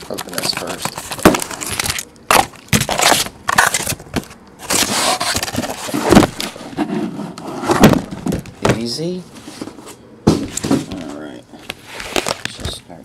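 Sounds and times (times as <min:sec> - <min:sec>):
cardboard scraping: 0:00.0 - 0:01.9, 0:02.8 - 0:11.2
cardboard cracking and rustling: 0:00.0 - 0:06.7.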